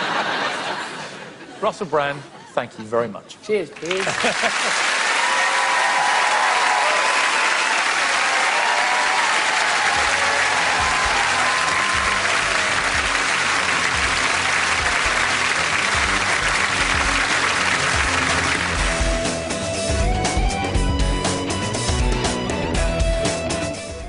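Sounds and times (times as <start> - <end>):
audience applauding: 3.7 - 20.1
music with rhythmic bass line: 10.6 - 24.0.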